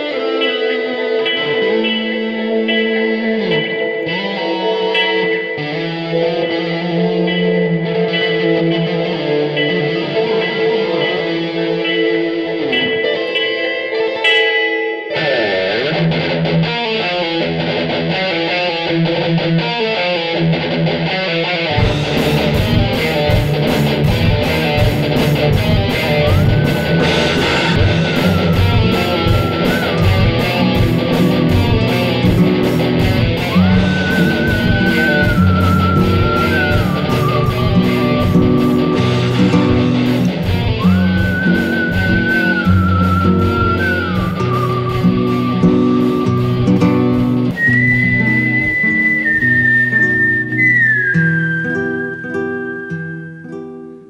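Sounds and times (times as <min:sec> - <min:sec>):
heavy metal band playing: 0:00.0 - 0:14.3, 0:15.1 - 0:50.7
lead guitar sliding notes: 0:00.0 - 0:54.0.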